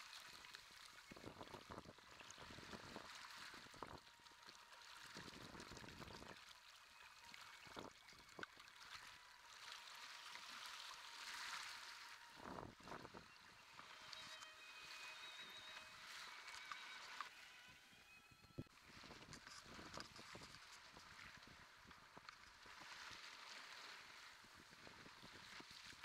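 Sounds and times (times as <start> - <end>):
low water surges: 0.0 - 17.7
sea water splashing: 0.0 - 17.7, 18.7 - 26.0.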